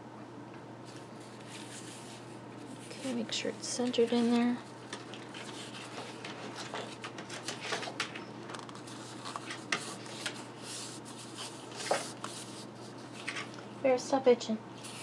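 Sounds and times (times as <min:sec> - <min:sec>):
card scraping and rustling: 0:00.9 - 0:13.6.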